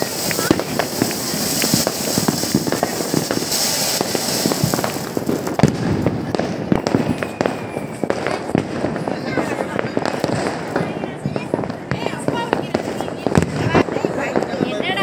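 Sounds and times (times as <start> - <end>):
firecracker cracks: 0.0 - 15.0
firework fountain hissing and crackling: 0.0 - 15.0.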